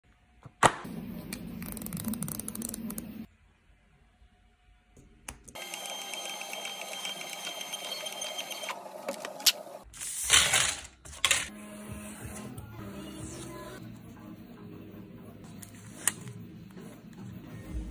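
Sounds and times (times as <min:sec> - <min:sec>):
label printer feed motor whirring: 0:05.6 - 0:09.8.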